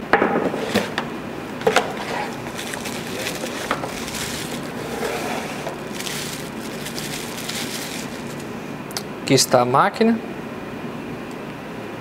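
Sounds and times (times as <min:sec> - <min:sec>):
packaging rustling: 0:01.6 - 0:08.6.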